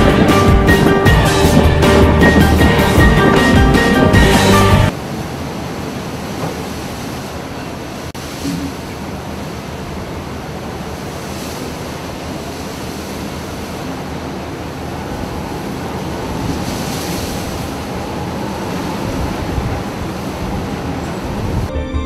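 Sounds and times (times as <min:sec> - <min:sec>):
wind buffeting microphone: 0:00.0 - 0:04.9, 0:13.1 - 0:21.7
storm wind rushing: 0:00.0 - 0:05.0, 0:09.8 - 0:21.7
waves breaking: 0:00.0 - 0:21.7.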